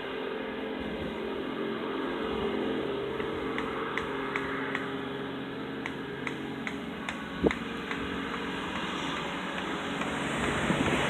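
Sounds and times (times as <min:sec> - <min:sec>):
engine humming: 0:00.0 - 0:11.0
light regular ticking: 0:05.8 - 0:11.0.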